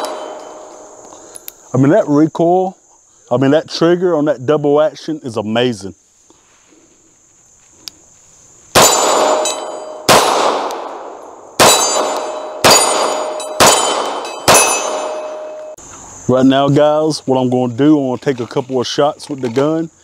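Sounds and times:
pistol shots: 0.0s - 0.6s, 8.8s - 15.6s.

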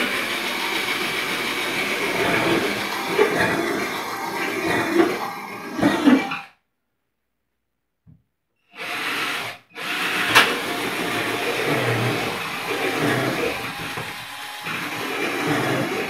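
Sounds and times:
cordless drill boring: 0.0s - 6.5s, 8.7s - 16.0s.

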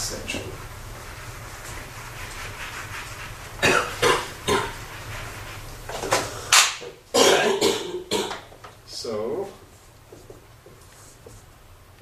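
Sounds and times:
person coughing: 3.6s - 4.8s, 7.2s - 8.4s.

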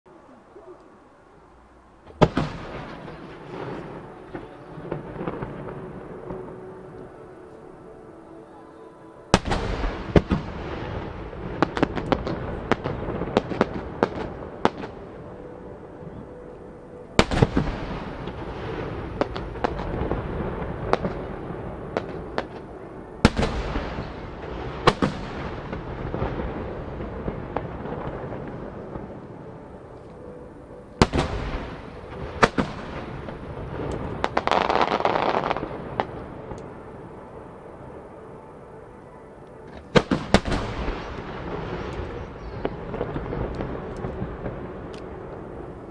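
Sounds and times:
lingering rumble: 0.1s - 45.9s
firework booms: 2.0s - 6.8s, 9.3s - 15.1s, 17.2s - 29.4s, 31.0s - 36.8s, 39.7s - 45.9s
sharp crackling of fireworks: 2.0s - 45.9s.

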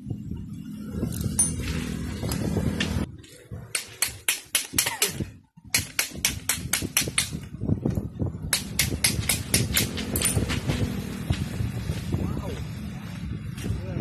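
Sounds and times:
sharp metallic clicks and taps: 5.7s - 7.4s, 8.5s - 11.0s.

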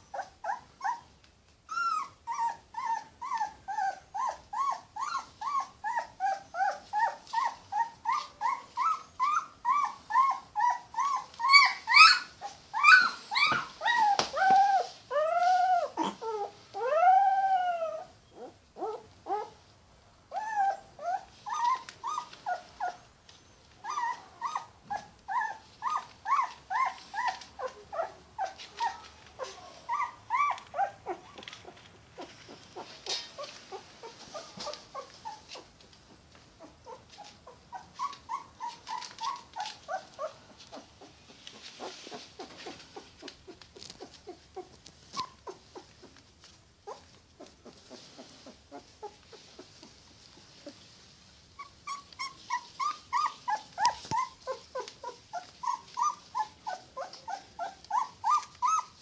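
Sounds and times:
puppy crying: 1.7s - 19.6s, 20.3s - 23.0s, 23.8s - 31.4s, 51.6s - 59.0s.

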